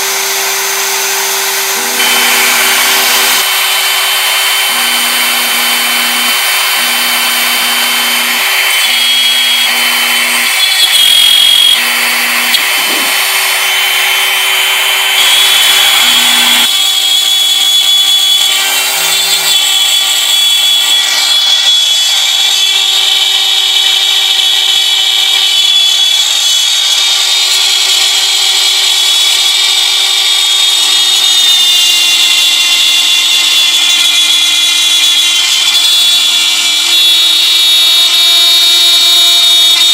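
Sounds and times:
machine motors humming: 0:00.0 - 0:27.0
router bit cutting hiss: 0:00.0 - 0:39.9
router high whine: 0:00.0 - 0:39.9.

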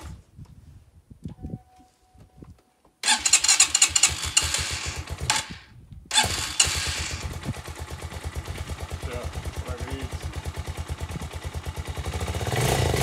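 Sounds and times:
motorcycle engine starting and running: 0:03.0 - 0:13.0.

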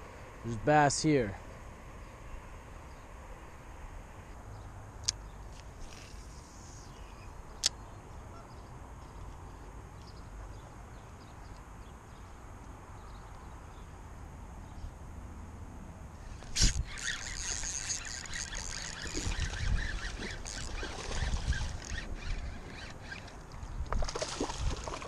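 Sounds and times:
faint bird calls: 0:04.6 - 0:08.7, 0:16.6 - 0:23.4
wind rumble on microphone: 0:19.0 - 0:25.0.

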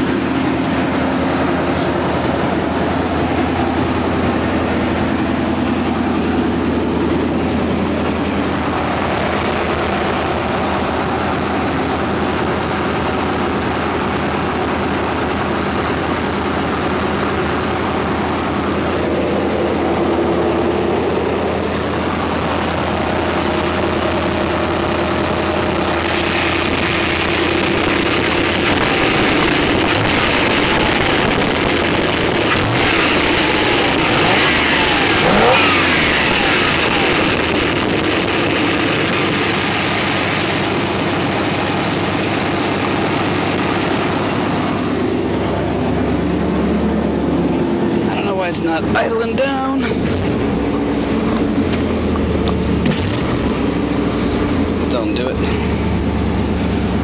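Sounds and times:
truck engine idling: 0:00.0 - 0:57.0.

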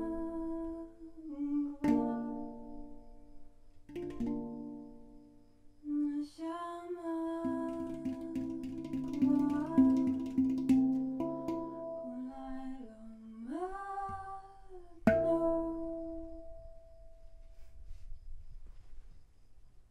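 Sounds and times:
handpan ringing notes: 0:03.9 - 0:05.1, 0:07.4 - 0:12.3, 0:15.1 - 0:16.6
woman singing sliding note: 0:05.9 - 0:10.4, 0:11.6 - 0:16.3.

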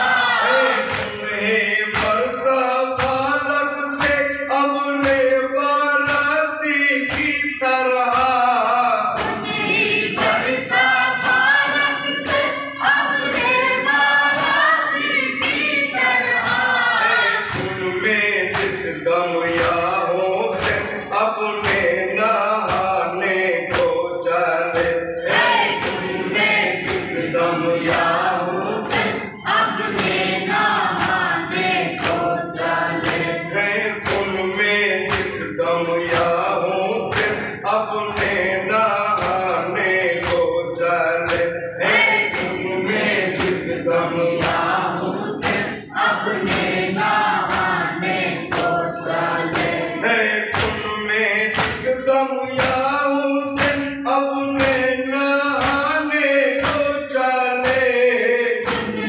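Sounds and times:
men chanting together: 0:00.0 - 0:59.0.

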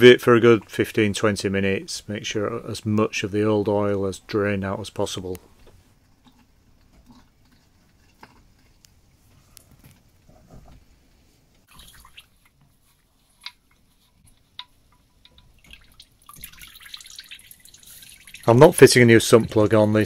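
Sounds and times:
oil dripping and trickling: 0:11.6 - 0:18.8.

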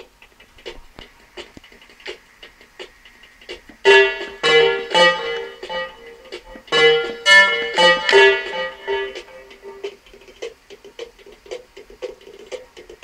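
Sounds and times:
electronic pitched notes: 0:03.9 - 0:09.9.

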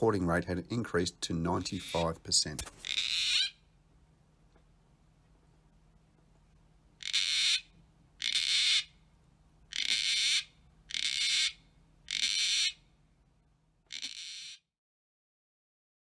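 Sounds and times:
cockatoo screeching: 0:02.8 - 0:03.6, 0:07.0 - 0:09.0, 0:09.7 - 0:12.8, 0:13.9 - 0:14.7.

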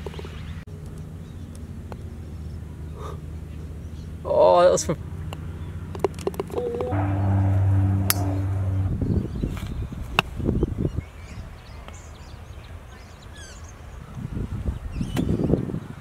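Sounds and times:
steady low hum: 0:06.8 - 0:09.4.

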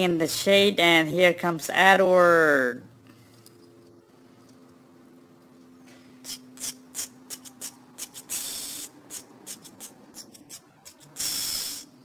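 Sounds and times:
short hissing puffs: 0:05.9 - 0:12.0.

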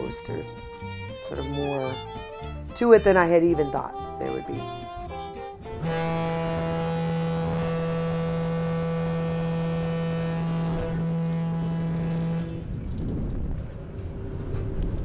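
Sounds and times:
ship's horn long low blast: 0:00.0 - 0:13.0
low rumble: 0:04.7 - 0:15.0.

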